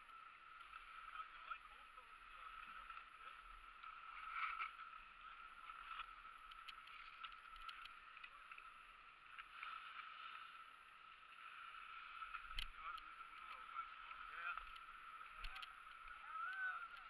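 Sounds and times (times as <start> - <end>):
faint steady hiss: 0.0 - 17.0
soft clicks: 5.9 - 8.7, 12.3 - 13.5, 14.4 - 17.0.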